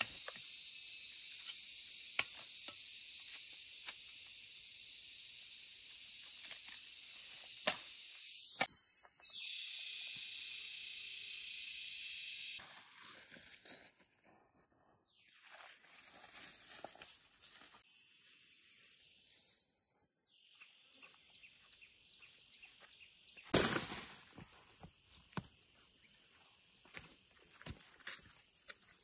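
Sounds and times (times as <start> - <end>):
insect chorus hissing: 0.0 - 29.0.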